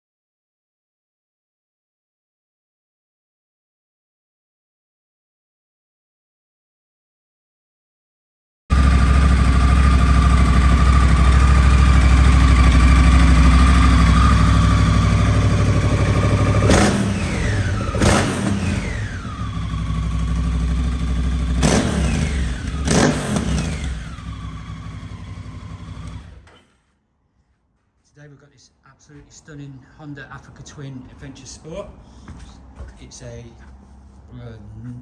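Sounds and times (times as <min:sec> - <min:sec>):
motorcycle engine idling and revving: 0:08.7 - 0:26.6.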